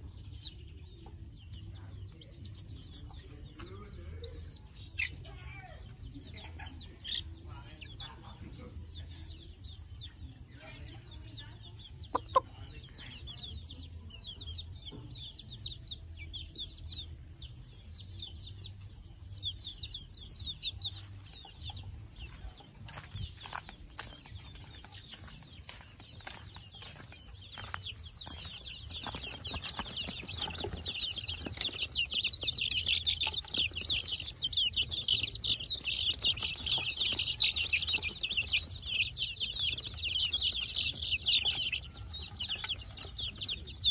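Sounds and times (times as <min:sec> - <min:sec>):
chicks peeping: 0:00.0 - 0:43.9.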